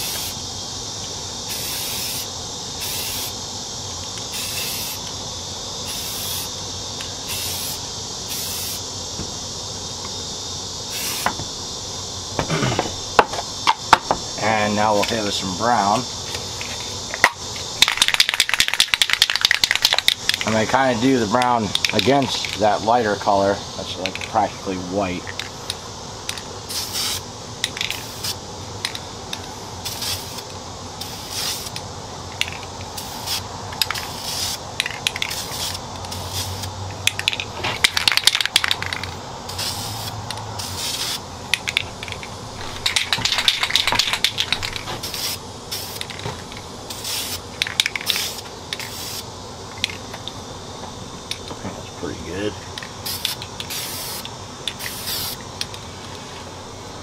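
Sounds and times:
spray can rattling: 0:00.0 - 0:00.4, 0:01.5 - 0:03.4, 0:04.1 - 0:05.2, 0:05.8 - 0:08.8, 0:10.9 - 0:11.5, 0:16.2 - 0:20.7, 0:21.7 - 0:22.8, 0:24.0 - 0:24.4, 0:25.2 - 0:50.4, 0:52.7 - 0:56.2
spray paint can hissing: 0:00.0 - 0:11.8, 0:12.8 - 0:22.8, 0:24.0 - 0:24.4, 0:25.2 - 0:50.4, 0:52.7 - 0:56.2.

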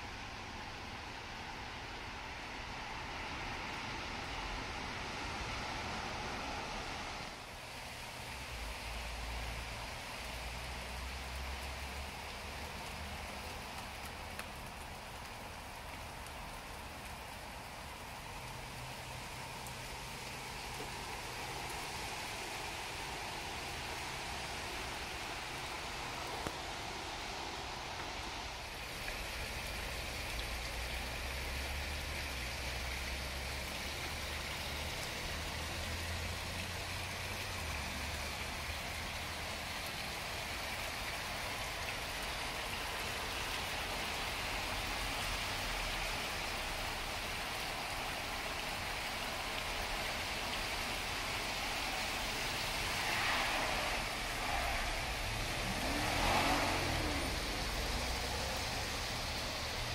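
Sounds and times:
rain falling on pond and plants: 0:00.0 - 0:59.9
pond bubbler splashing: 0:28.1 - 0:46.5, 0:47.1 - 0:59.9.

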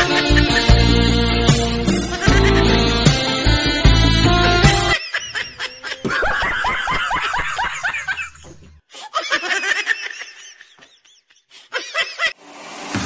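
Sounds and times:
high-pitched laughter: 0:04.9 - 0:12.4.

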